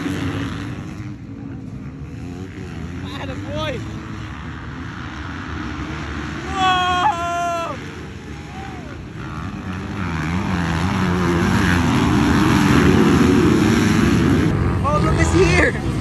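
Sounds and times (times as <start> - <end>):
dirt bike engines droning: 0.0 - 16.0
high-pitched wail: 6.4 - 9.0.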